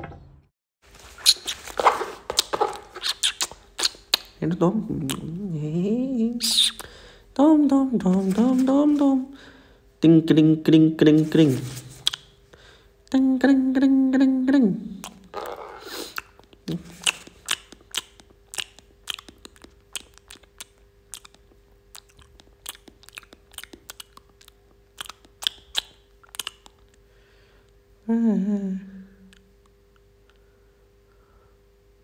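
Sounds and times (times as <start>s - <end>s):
monkey crunching food: 15.0s - 27.0s.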